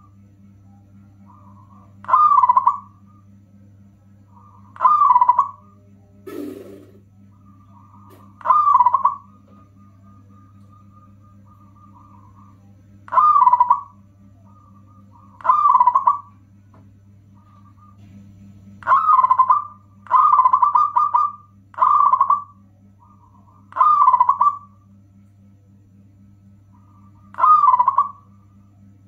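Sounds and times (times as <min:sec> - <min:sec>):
steady low hum: 0:00.0 - 0:29.0
dove cooing: 0:01.2 - 0:03.3, 0:04.3 - 0:16.4, 0:17.3 - 0:18.2, 0:18.8 - 0:24.9, 0:26.7 - 0:28.6.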